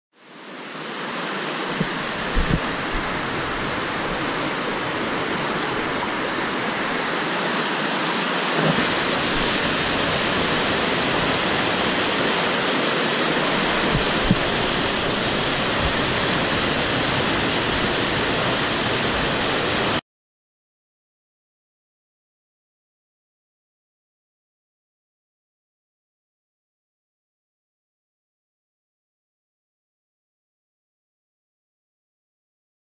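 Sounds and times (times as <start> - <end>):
river rushing over rapids: 0.2 - 20.0.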